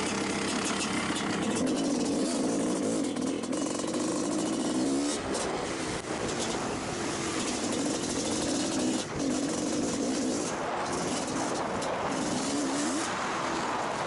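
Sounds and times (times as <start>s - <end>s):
motorcycle engine revving: 0.0s - 14.0s.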